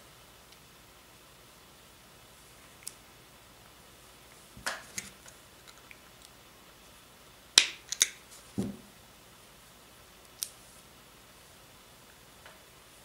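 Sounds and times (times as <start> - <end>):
plastic parts clicking on table: 7.6 - 8.2
dull knock: 8.6 - 8.9.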